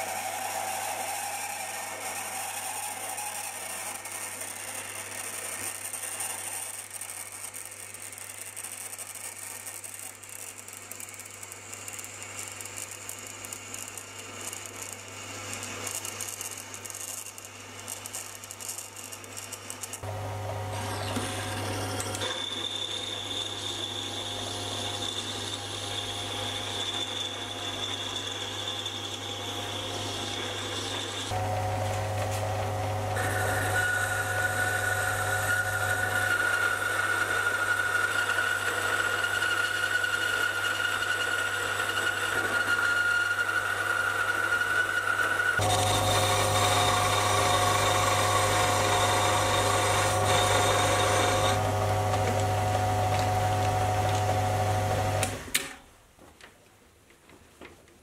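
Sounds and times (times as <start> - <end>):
metal lathe cutting steel: 0.0 - 7.5, 20.7 - 31.7, 33.1 - 55.3.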